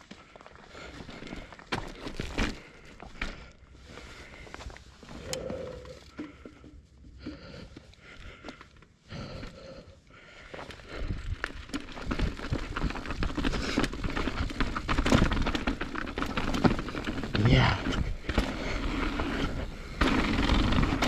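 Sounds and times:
rider breathing: 0.0 - 21.0
bike rattling over rough ground: 0.1 - 4.5, 10.4 - 21.0.

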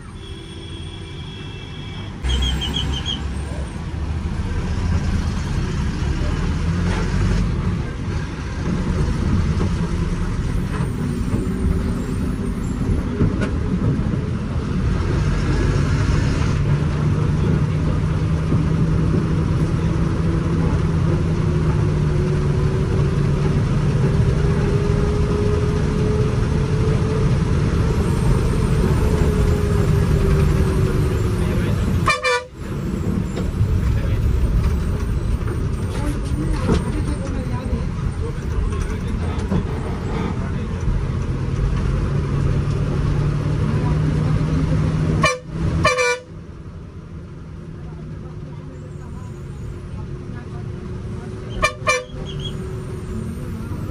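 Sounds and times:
bus horn: 0.0 - 3.2, 32.0 - 32.7, 45.2 - 46.4, 51.5 - 52.6
bus diesel engine under load: 0.0 - 53.9.

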